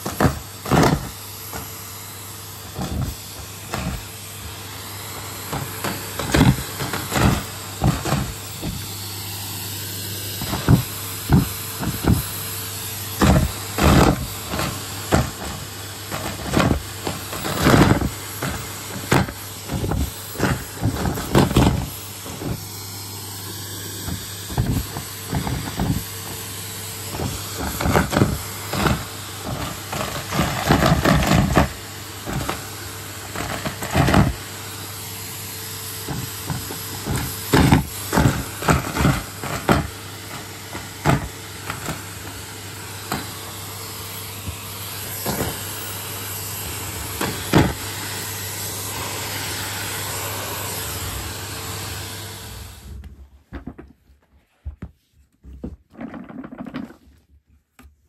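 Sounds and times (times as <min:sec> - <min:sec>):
vacuum cleaner running: 0:00.0 - 0:53.9.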